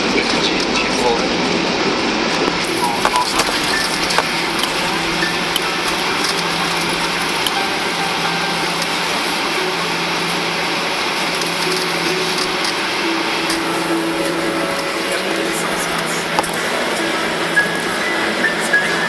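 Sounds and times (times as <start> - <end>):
airplane cabin roar: 0.0 - 19.0.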